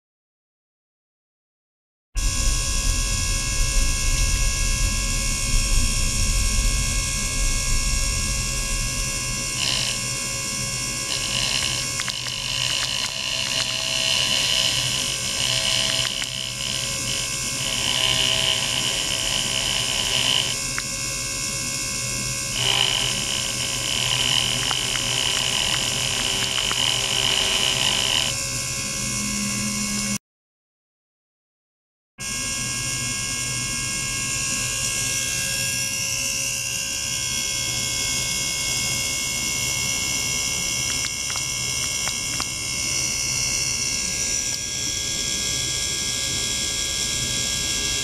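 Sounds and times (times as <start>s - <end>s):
electric toothbrush buzzing in water: 2.2s - 30.2s, 32.2s - 48.0s
small motor whir: 2.2s - 30.2s, 34.5s - 48.0s.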